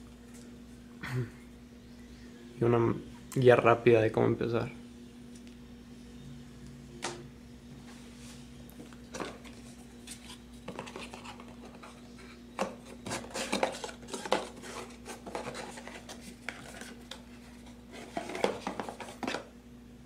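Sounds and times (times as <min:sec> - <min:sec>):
cardboard scraping and rubbing: 0:09.6 - 0:19.4.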